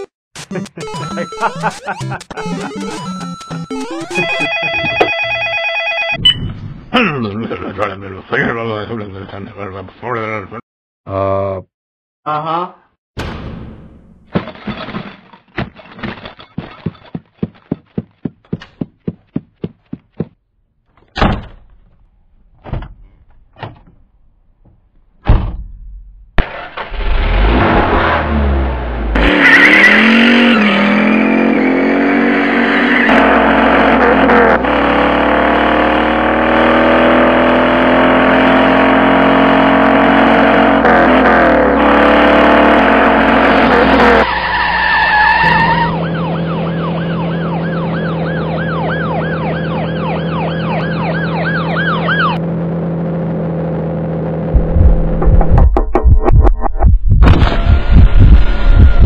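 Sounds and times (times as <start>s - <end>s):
police siren yelping: 0.8s - 6.2s, 44.1s - 52.4s
sharp clunks: 24.6s - 26.1s
car engine starting and revving: 26.4s - 44.3s.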